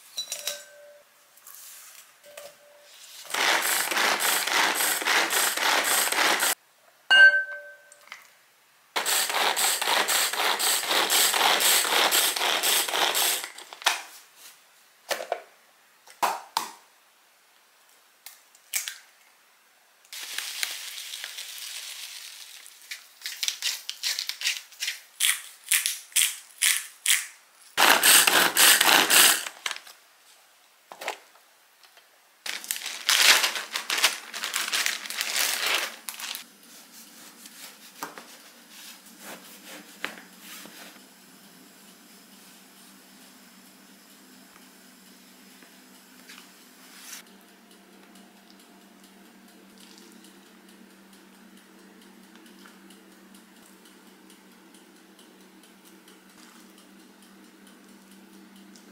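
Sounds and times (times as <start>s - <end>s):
scraping and mixing: 3.2s - 6.6s
pull-cord chopper crunching food: 3.3s - 6.5s, 27.8s - 29.6s.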